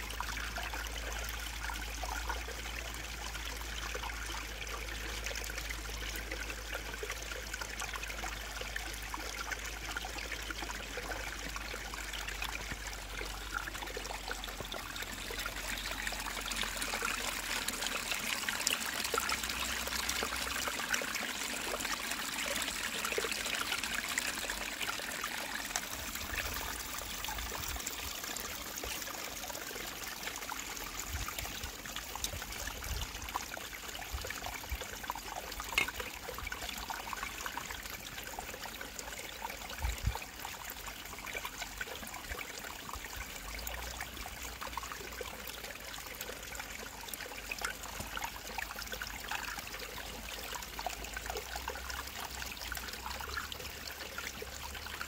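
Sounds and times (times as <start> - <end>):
water trickling into metal bowl: 11.0 - 38.9.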